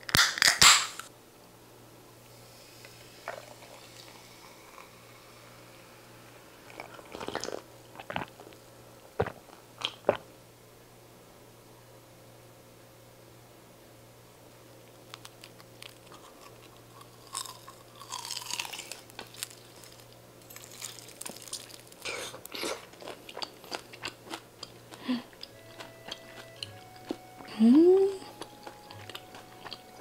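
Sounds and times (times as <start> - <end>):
crunchy bite: 0.0 - 1.1, 15.0 - 26.8
wet chewing with mouth clicks: 6.7 - 10.2, 14.8 - 30.0.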